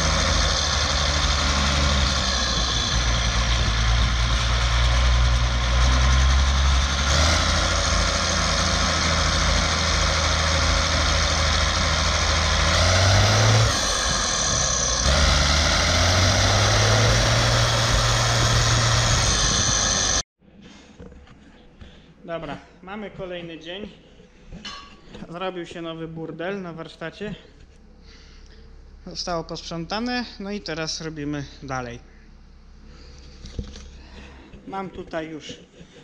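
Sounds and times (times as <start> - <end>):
diesel engine idling: 0.0 - 20.2.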